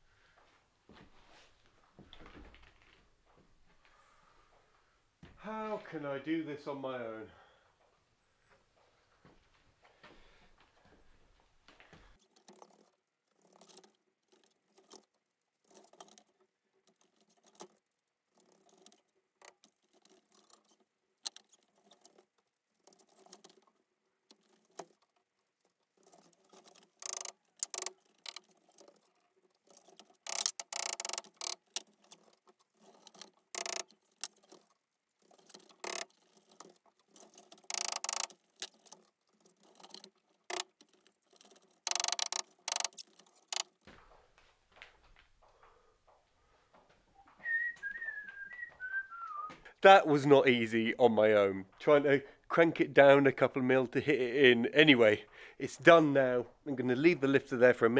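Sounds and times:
winch ratcheting clicks and rattles: 12.1 - 43.9.

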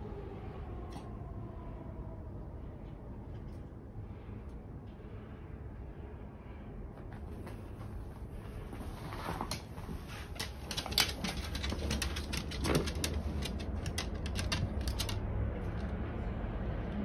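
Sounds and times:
low steady hum: 0.0 - 17.0
dog claws clicking on hard floor: 9.1 - 15.9.

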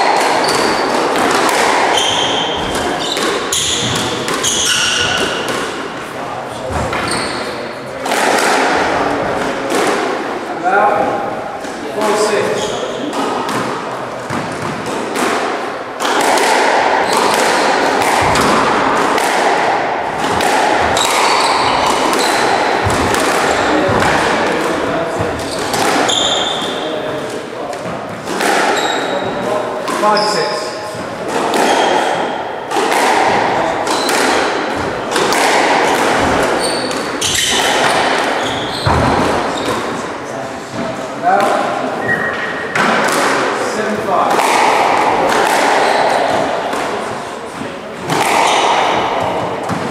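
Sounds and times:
squash ball cracking off rackets: 0.0 - 6.0, 6.7 - 10.3, 11.6 - 49.9
shoes squeaking on wooden floor: 0.3 - 1.0, 1.8 - 5.5, 6.6 - 7.6, 20.2 - 24.0, 25.2 - 26.8, 28.7 - 29.4, 35.8 - 40.0, 42.0 - 42.7.

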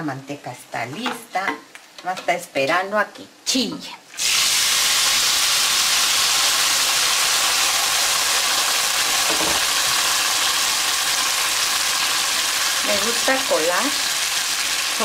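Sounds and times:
salsa sizzling in hot lard: 3.4 - 15.0.

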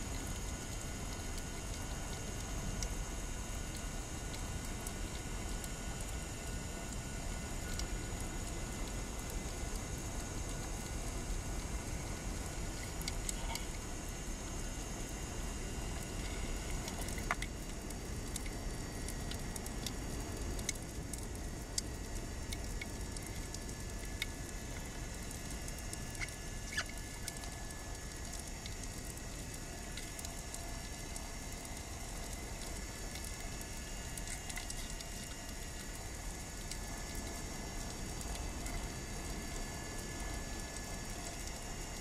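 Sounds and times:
sharp clicks and crackles: 16.0 - 18.6, 19.2 - 20.0, 20.6 - 39.4.

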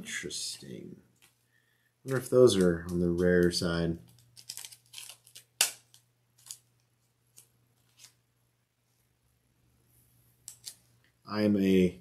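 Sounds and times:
plastic card sleeve crackling: 2.1 - 8.2, 10.4 - 10.8.

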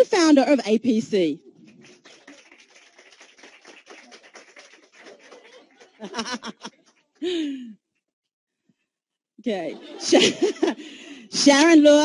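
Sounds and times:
small audience applause: 1.5 - 7.5.

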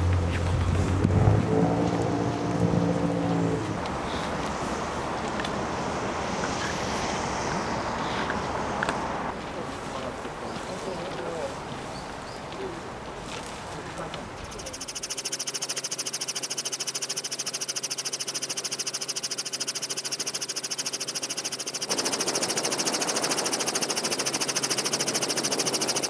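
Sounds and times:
helicopter rotor and whine: 14.5 - 26.0.

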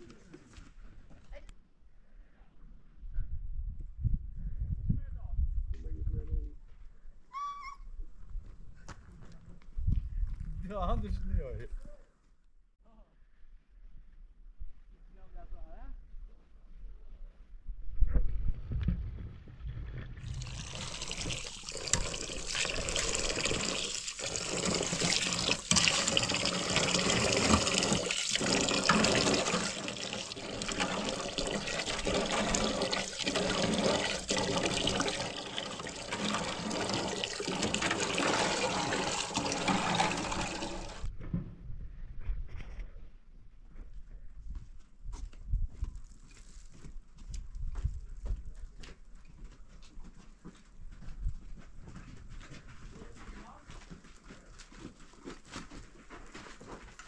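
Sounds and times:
water pouring in a stream: 19.8 - 41.1.

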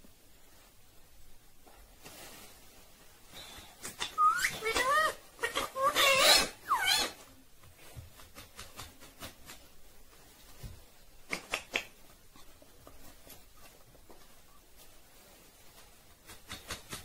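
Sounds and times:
parakeet calling: 4.0 - 7.2.

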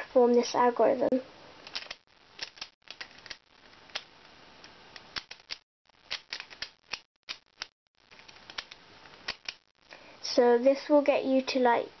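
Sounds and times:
plastic puzzle clicking: 1.6 - 4.1, 5.0 - 9.6.

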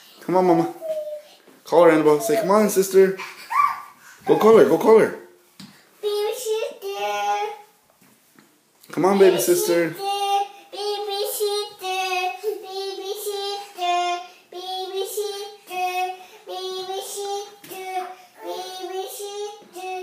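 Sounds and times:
child singing: 9.1 - 20.0.

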